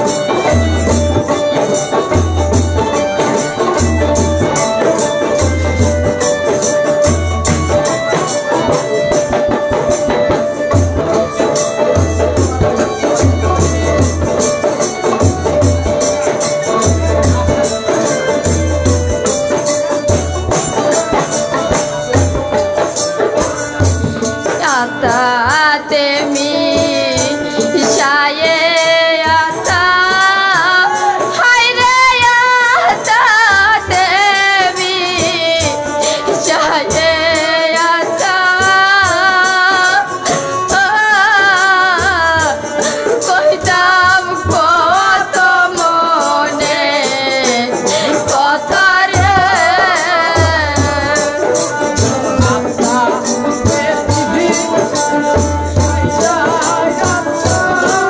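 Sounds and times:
dhol drum: 0:00.0 - 0:58.0
rattling percussion beat: 0:00.0 - 0:58.0
woman singing with vibrato: 0:15.6 - 0:58.0.

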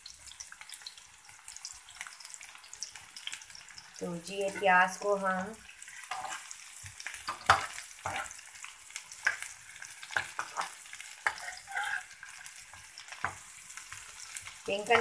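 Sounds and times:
onions sizzling in oil: 0:00.0 - 0:15.0
spoon scraping pan: 0:04.3 - 0:05.0, 0:05.8 - 0:15.0.

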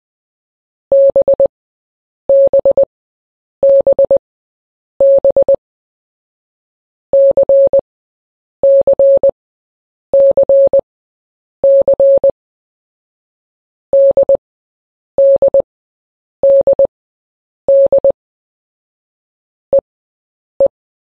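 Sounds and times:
morse code beeps: 0:00.9 - 0:01.5, 0:02.3 - 0:02.9, 0:03.6 - 0:04.2, 0:05.0 - 0:05.6, 0:07.2 - 0:07.8, 0:08.6 - 0:09.4, 0:10.2 - 0:10.8, 0:11.6 - 0:12.3, 0:14.0 - 0:14.4, 0:15.2 - 0:15.6, 0:16.4 - 0:16.9, 0:17.7 - 0:18.2.

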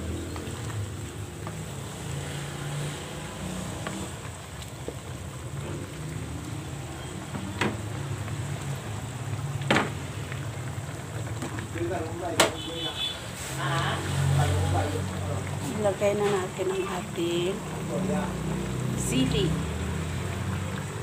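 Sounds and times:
food simmering in a pan: 0:00.0 - 0:21.0
wooden spatula knocking pan: 0:12.4 - 0:12.7.

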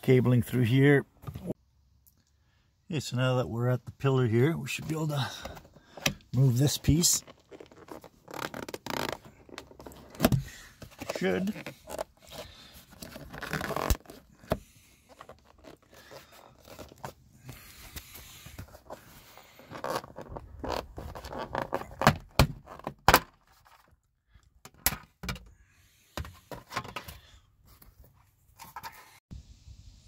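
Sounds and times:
plastic trim scraping: 0:07.2 - 0:17.1.

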